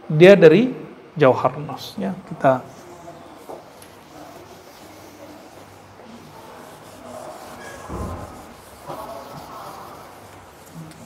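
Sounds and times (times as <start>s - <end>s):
eraser wiping whiteboard: 2.7s - 11.0s.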